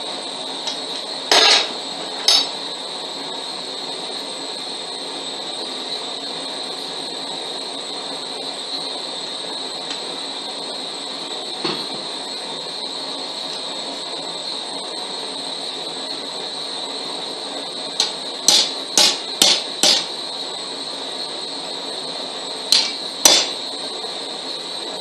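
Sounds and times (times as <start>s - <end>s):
high whine: 0.0s - 25.0s
hammer striking metal on anvil: 1.3s - 2.6s, 18.0s - 20.1s, 22.7s - 23.6s.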